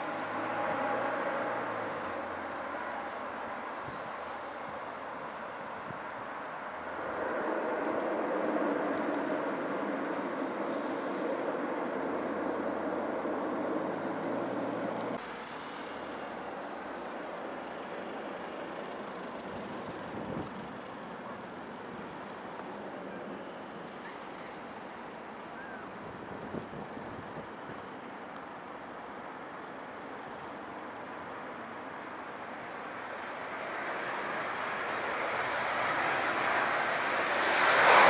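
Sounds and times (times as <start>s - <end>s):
turboprop engine and propeller noise: 0.0s - 38.0s
jet rumble: 20.0s - 38.0s.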